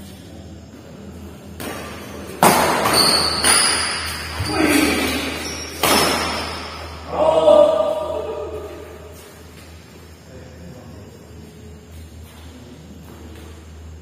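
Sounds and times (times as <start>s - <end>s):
rackets hitting shuttlecock: 1.6s - 7.1s
voices shouting: 3.8s - 9.2s.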